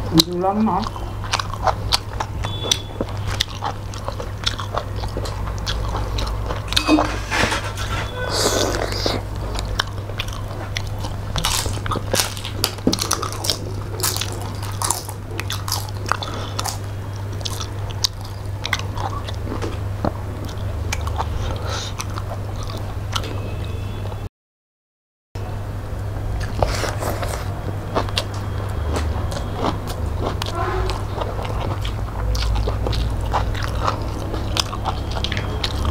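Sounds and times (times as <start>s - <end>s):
people chewing: 0.0s - 23.5s, 26.4s - 35.9s
steady low hum: 0.0s - 24.3s, 25.4s - 35.9s.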